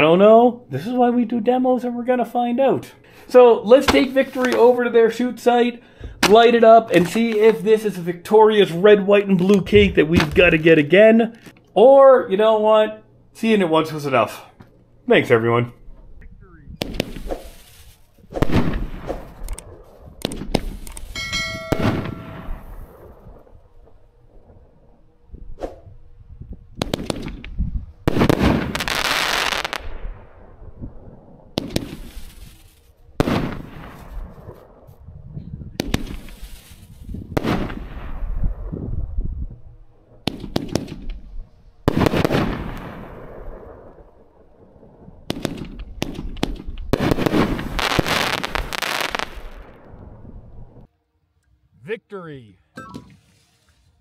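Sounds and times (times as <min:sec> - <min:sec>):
fireworks cake firing reports: 0:02.8 - 0:11.3, 0:16.5 - 0:19.5, 0:28.1 - 0:30.1, 0:31.6 - 0:34.6, 0:35.8 - 0:38.4, 0:41.8 - 0:43.8, 0:45.3 - 0:49.8
firework pops: 0:03.8 - 0:04.7, 0:16.8 - 0:21.1, 0:26.8 - 0:29.9, 0:31.6 - 0:32.5, 0:35.8 - 0:36.8, 0:40.2 - 0:41.2, 0:45.3 - 0:49.6
bell-like ringing tone: 0:21.2 - 0:22.7, 0:52.8 - 0:53.2.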